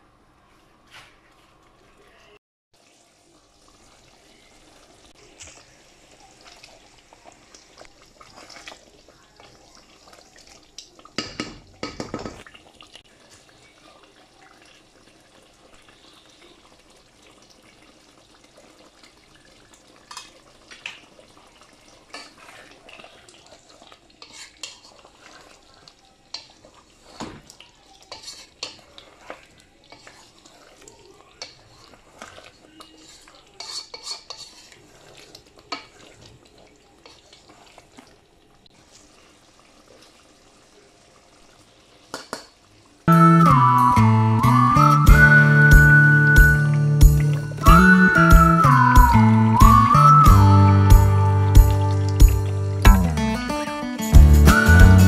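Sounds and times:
curry simmering and bubbling: 0:00.4 - 0:43.7.

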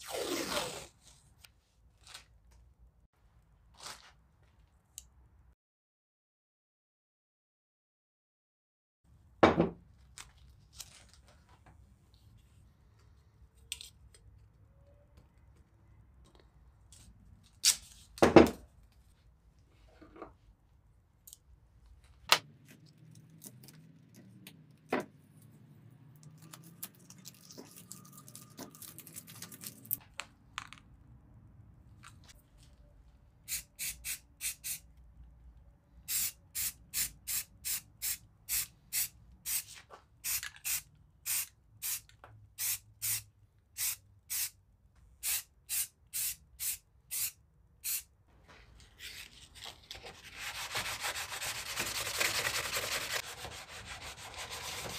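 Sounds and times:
hand sanding strokes: 0:50.3 - 0:54.9.

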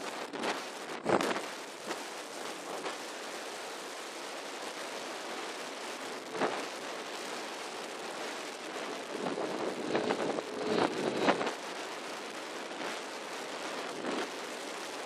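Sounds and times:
wind rushing over microphone: 0:00.0 - 0:03.0, 0:08.1 - 0:13.0, 0:13.8 - 0:14.4.

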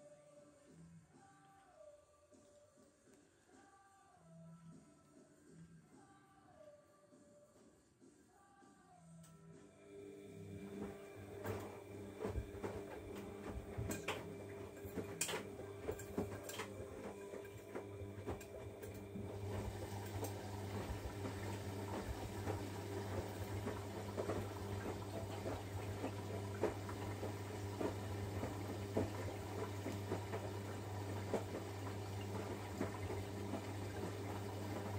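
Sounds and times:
washing machine motor hum: 0:09.7 - 0:34.9
water sloshing and laundry tumbling: 0:10.2 - 0:34.9.

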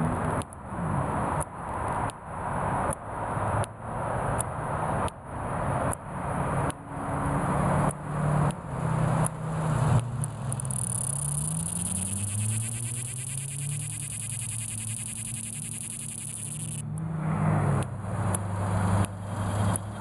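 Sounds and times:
cicada buzzing: 0:10.3 - 0:16.8
low wavering hum: 0:10.6 - 0:16.8.

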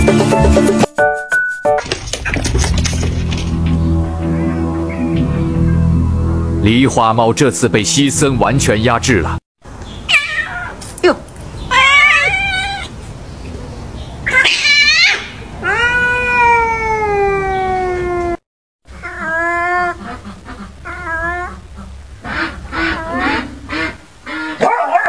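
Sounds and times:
cats yowling: 0:10.1 - 0:10.8, 0:11.7 - 0:13.0, 0:14.2 - 0:22.0.

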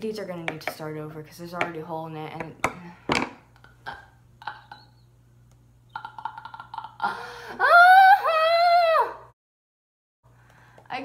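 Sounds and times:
girl screaming: 0:07.6 - 0:09.3.

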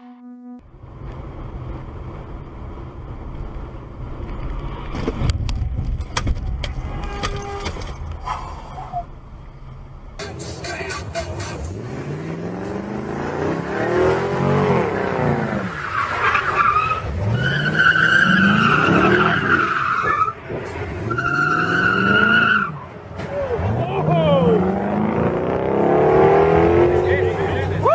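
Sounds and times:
car engine revving: 0:09.6 - 0:22.6, 0:23.3 - 0:27.8.

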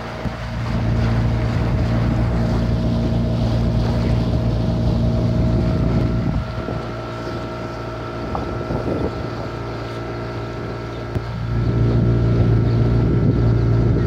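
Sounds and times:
motorboat engine running: 0:00.0 - 0:14.0.

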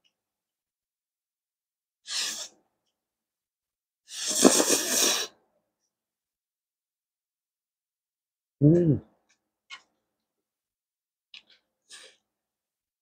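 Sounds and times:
breathy puff: 0:04.1 - 0:05.4
person slurping noodles: 0:04.1 - 0:05.4.

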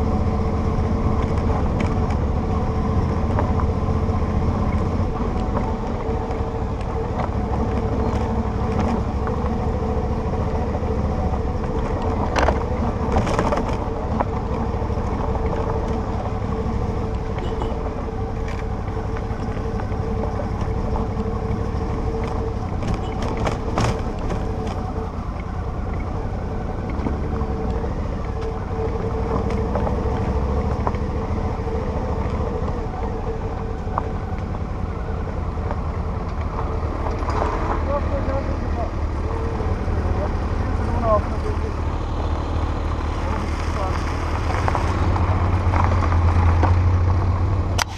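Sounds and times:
motorcycle engine running: 0:00.0 - 0:47.9.

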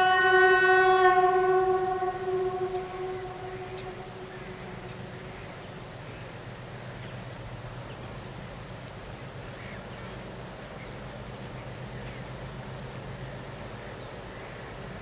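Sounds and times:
train horn blast: 0:00.0 - 0:05.3
freight train rumbling: 0:00.0 - 0:15.0.

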